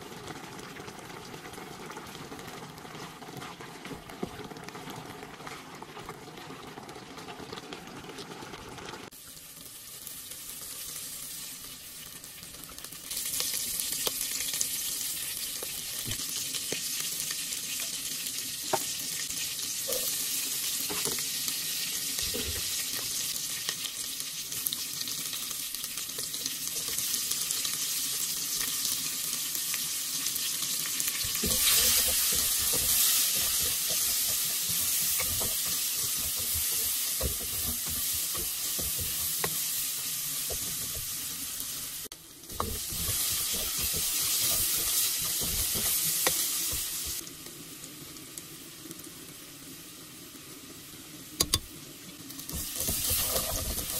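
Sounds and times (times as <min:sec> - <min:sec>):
curry bubbling in a pot: 0:00.0 - 0:09.9
hot oil sizzling: 0:00.0 - 0:53.9
wooden spoon stirring: 0:02.4 - 0:07.8, 0:31.2 - 0:39.6, 0:42.5 - 0:47.2, 0:52.5 - 0:53.9.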